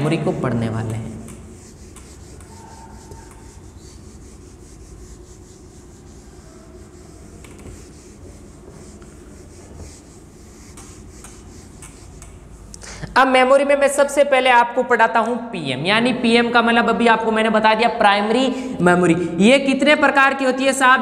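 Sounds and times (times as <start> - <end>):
eraser rubbing on whiteboard: 0.8 - 12.7.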